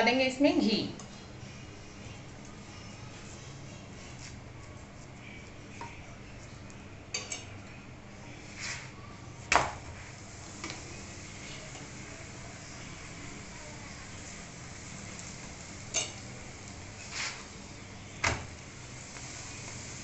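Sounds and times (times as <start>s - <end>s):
utensils clinking on griddle: 7.1s - 7.6s, 15.2s - 16.4s.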